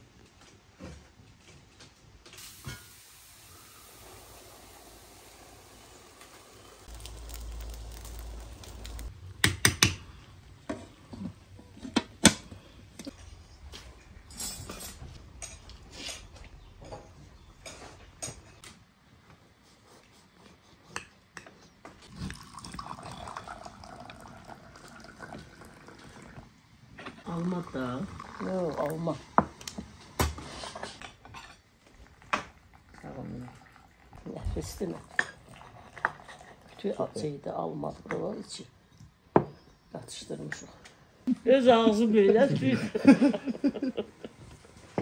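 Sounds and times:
metal pots and utensils clanking: 2.4s - 3.0s, 10.7s - 18.6s.

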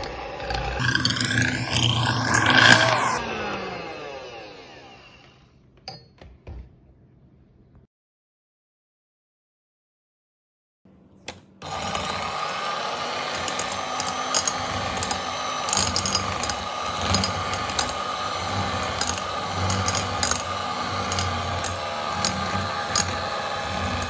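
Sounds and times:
electric hand mixer whine: 0.0s - 5.5s, 11.6s - 24.0s.

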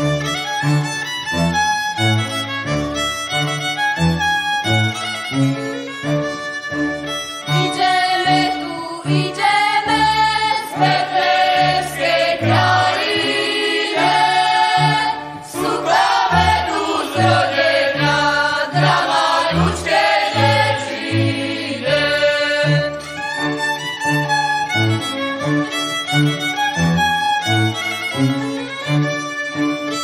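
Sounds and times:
bowed bass line: 0.0s - 30.0s
folk group singing a carol: 7.6s - 23.1s.

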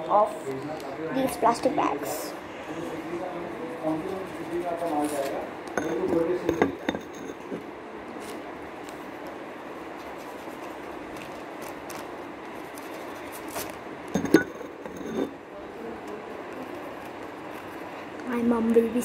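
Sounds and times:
low background hum: 0.0s - 19.0s
steady background noise: 0.0s - 19.0s.

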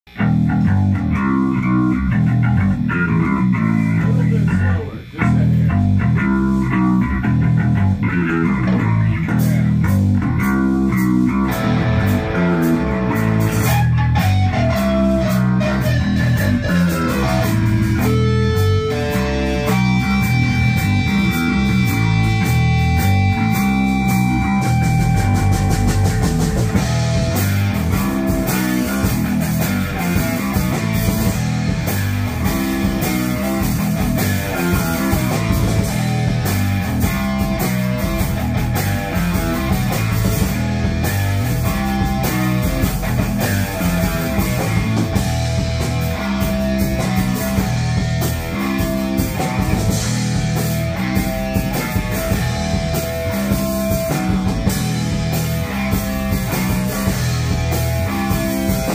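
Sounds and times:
electric bass: 0.0s - 58.9s
drum kit: 0.1s - 58.9s
electric guitar: 0.1s - 58.9s.

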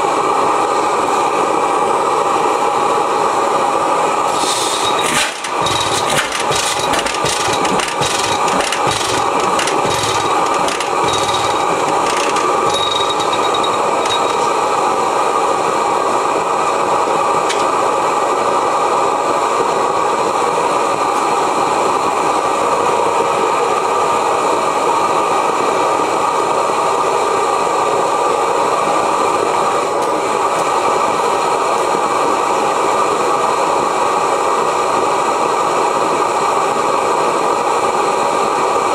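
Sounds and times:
engine knocking and rattling: 4.3s - 14.6s.

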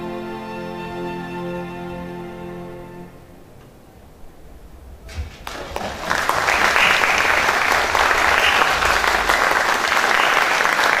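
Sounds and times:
audience applauding: 5.1s - 11.0s.

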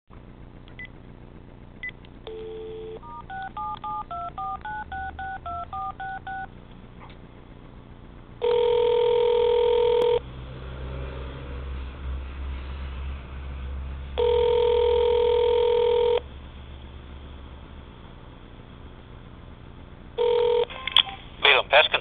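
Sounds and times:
dial tone: 2.3s - 6.5s, 8.4s - 10.2s, 14.2s - 16.2s, 20.2s - 20.9s
telephone ringback ring: 2.3s - 6.5s, 8.4s - 10.2s, 14.2s - 16.2s, 20.2s - 20.7s
touch-tone key tones: 2.3s - 6.5s.

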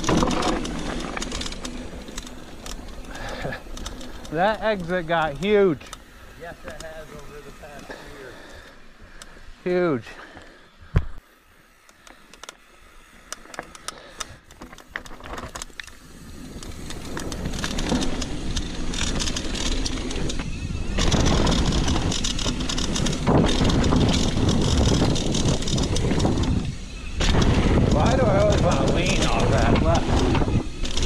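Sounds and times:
bike clicks and rattles: 0.0s - 31.0s
tyre noise: 13.7s - 31.0s
wind on microphone: 20.4s - 30.8s.

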